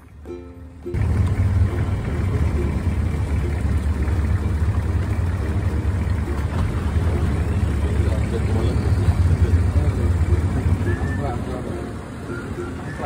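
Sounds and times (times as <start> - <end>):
boat engine rumbling: 0.0 - 13.0.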